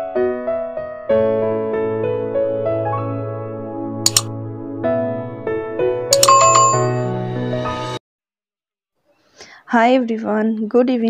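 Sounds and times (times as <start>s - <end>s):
keyboard background music: 3.0s - 7.9s
sharp clicks: 4.1s - 4.3s, 6.2s - 6.9s
bell-like ding: 6.2s - 7.1s.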